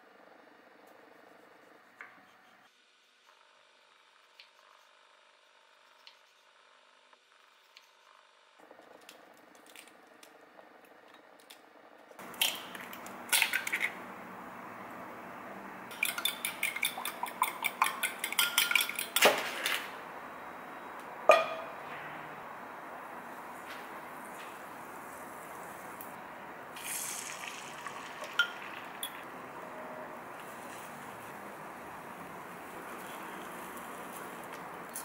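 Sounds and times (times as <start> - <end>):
metal spoon clinking on glass bowl: 15.9 - 19.2.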